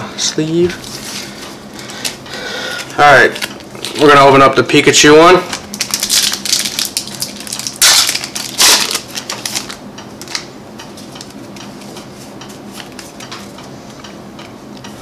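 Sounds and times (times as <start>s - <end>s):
foil wrapper tearing and crumpling: 5.5s - 10.4s.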